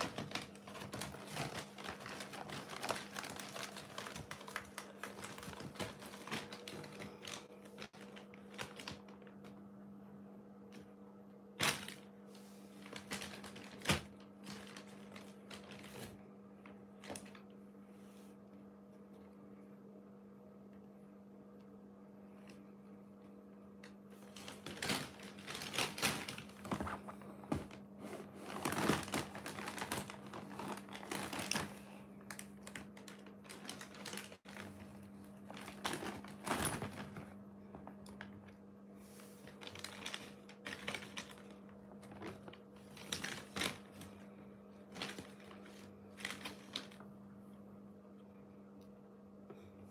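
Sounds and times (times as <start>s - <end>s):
plastic bag crinkling: 0.0s - 9.5s, 12.7s - 16.2s, 24.2s - 38.6s, 39.4s - 44.2s, 44.8s - 47.0s.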